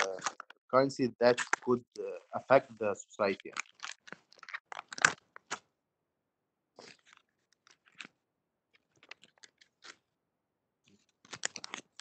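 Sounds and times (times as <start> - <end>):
faint crackles and clicks: 0.0 - 0.6, 1.2 - 5.7, 6.8 - 10.1, 10.8 - 12.0.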